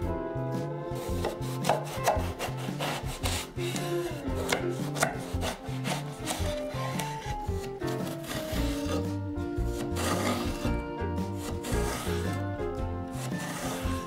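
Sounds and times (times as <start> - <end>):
background music with bass line: 0.0 - 14.0
knife cutting aubergine on board: 1.0 - 9.2, 9.8 - 10.7, 11.3 - 12.4, 13.1 - 14.0.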